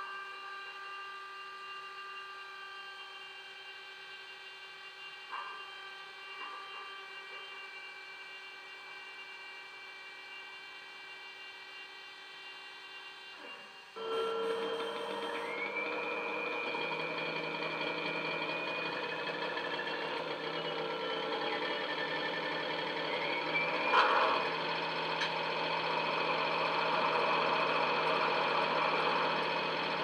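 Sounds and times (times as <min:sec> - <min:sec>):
diesel engine idling with whine: 0:02.7 - 0:30.0.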